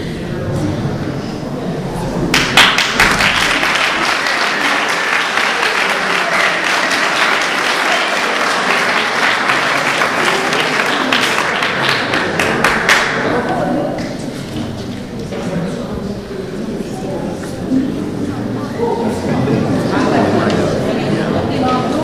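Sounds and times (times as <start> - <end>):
group of people clapping: 2.3 - 15.1.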